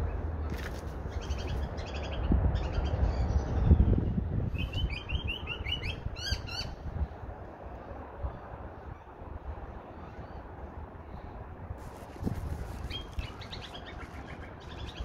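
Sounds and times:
magpies calling: 12.8 - 15.0.

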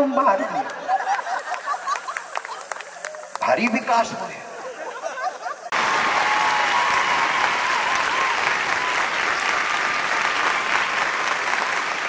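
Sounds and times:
crowd applauding: 0.7 - 3.8, 5.7 - 12.0.

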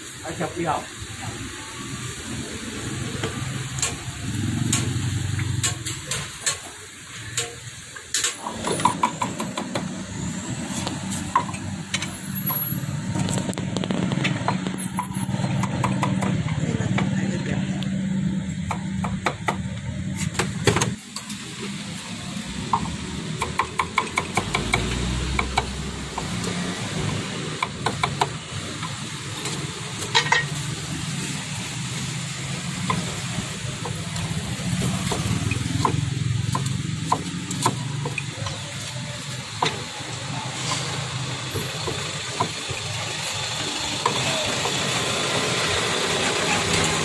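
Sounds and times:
cleaver chopping on wooden board: 23.4 - 26.3.

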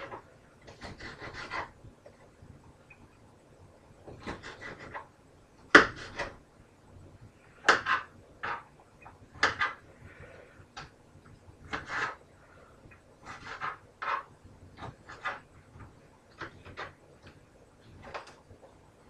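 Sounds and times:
knife chopping peppers on a plate: 0.0 - 1.7, 4.1 - 5.1, 5.7 - 6.3, 7.6 - 8.7, 9.4 - 9.8, 11.7 - 12.2, 13.2 - 17.0.

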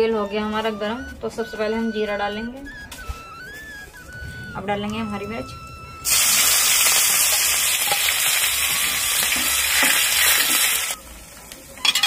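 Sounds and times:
chillies sizzling in hot oil: 6.0 - 12.0.

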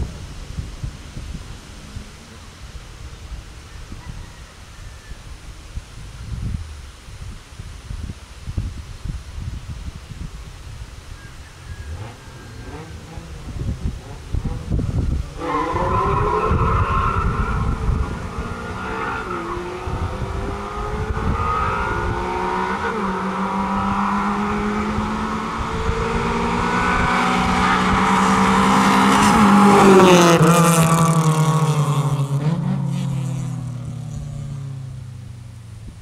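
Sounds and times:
racing car engines revving: 11.7 - 35.6.

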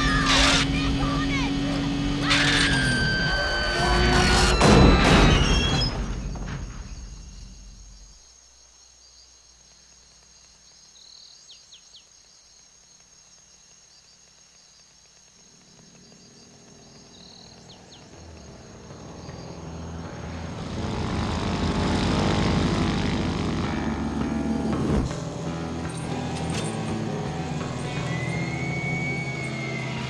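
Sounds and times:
insect hum: 2.2 - 23.6, 25.8 - 30.0
propeller airplane engine drone: 15.5 - 30.0.

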